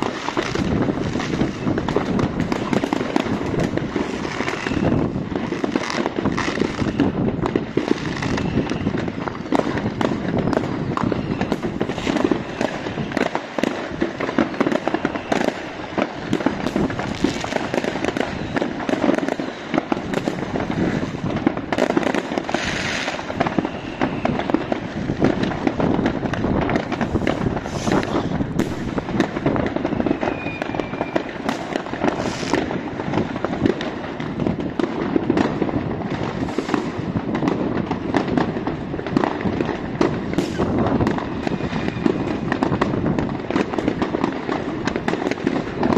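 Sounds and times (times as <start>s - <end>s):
firework whistle: 0.0s - 33.9s, 34.8s - 45.9s
firework hisses: 0.0s - 34.2s, 35.6s - 45.8s
fireworks bangs and crackles: 0.0s - 45.9s.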